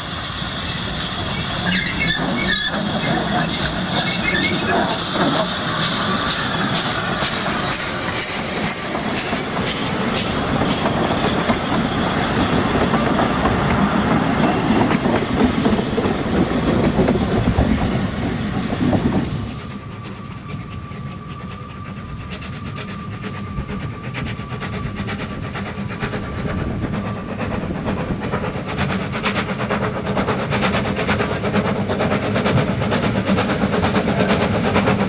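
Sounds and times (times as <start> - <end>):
coach wheels clicking on rail joints: 0.0 - 35.0
distant train: 0.0 - 35.0
steam hissing: 0.0 - 35.0
steam locomotive exhaust beats: 0.0 - 35.0.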